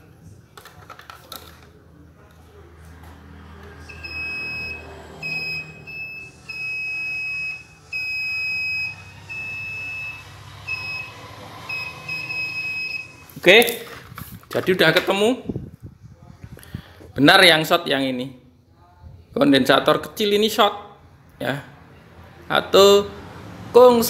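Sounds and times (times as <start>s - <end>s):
multimeter continuity beeping: 3.9s - 13.4s.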